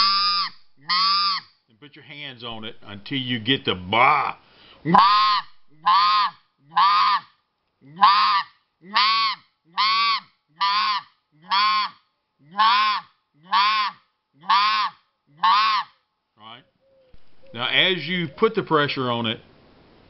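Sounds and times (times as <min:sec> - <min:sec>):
goose call honks: 0:00.0 - 0:01.4, 0:04.9 - 0:07.3, 0:07.9 - 0:15.9.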